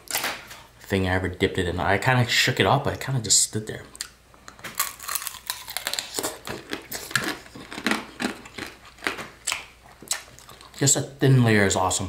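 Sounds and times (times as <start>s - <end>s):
candy shell crunching while chewing: 4.7s - 10.9s.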